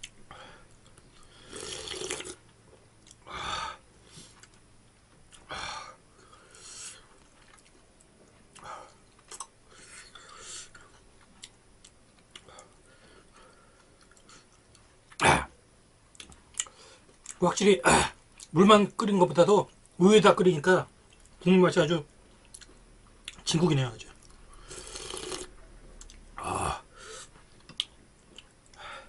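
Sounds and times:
person slurping broth: 1.4s - 2.4s, 24.7s - 25.5s.

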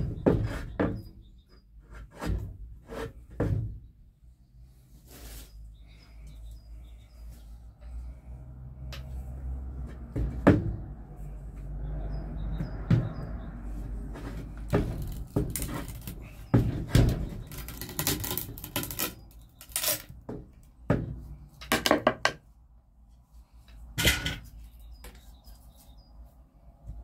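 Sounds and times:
loppers cracking through wood: 14.6s - 20.2s.

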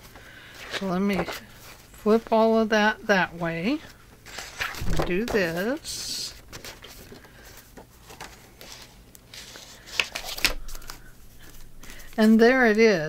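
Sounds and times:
paper rustling: 4.3s - 12.8s.

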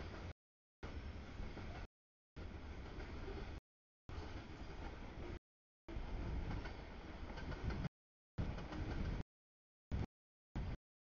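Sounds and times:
freight train rolling on rails: 0.0s - 9.2s.

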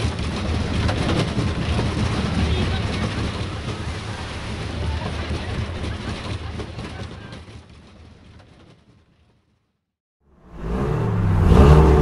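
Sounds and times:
roller coaster train rumbling: 0.0s - 9.6s
people's voices: 2.3s - 7.5s.

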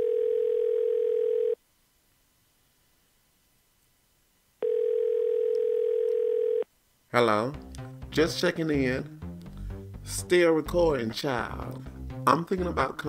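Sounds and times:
telephone ringback tone: 0.0s - 1.6s, 4.6s - 6.6s.

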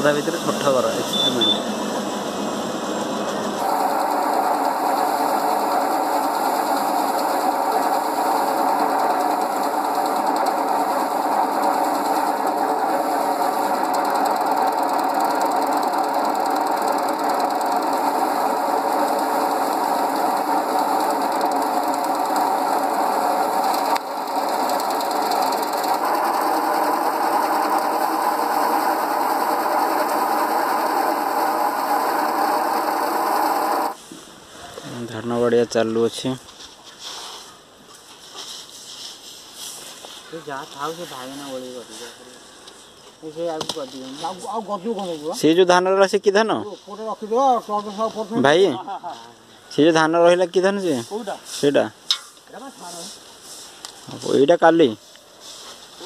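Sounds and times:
threshing machine whirring: 3.5s - 34.0s.

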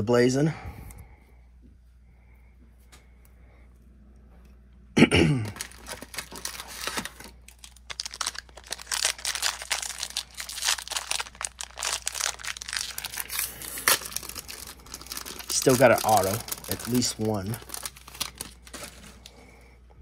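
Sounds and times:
foil wrapper crinkling and tearing: 5.4s - 19.4s.

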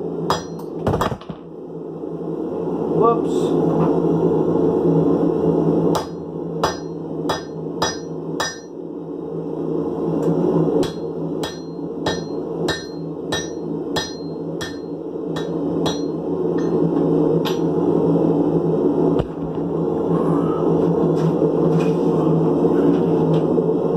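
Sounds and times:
steady low hum: 0.0s - 23.9s
hammer striking hot metal on anvil: 0.3s - 0.8s, 5.9s - 8.8s, 10.8s - 17.8s.

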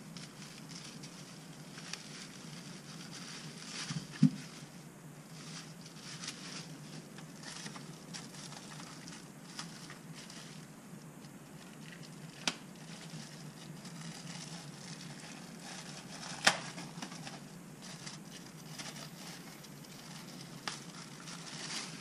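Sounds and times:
plastic packaging crinkling: 11.6s - 22.0s.

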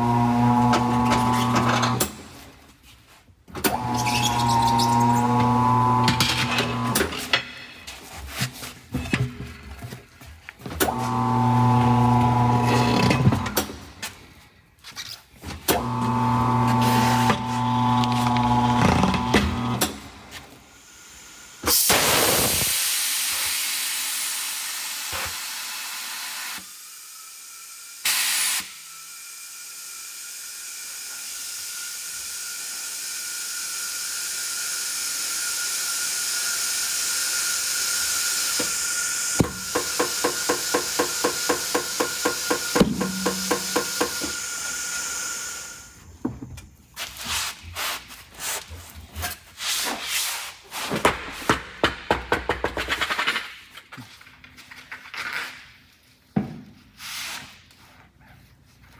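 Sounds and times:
compressed air hissing into tire: 28.0s - 28.9s.

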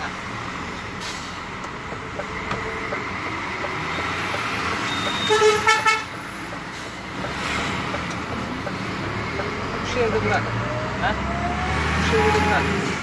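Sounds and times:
truck engine and road noise: 0.0s - 13.0s
vehicle horn toot: 4.8s - 6.1s.

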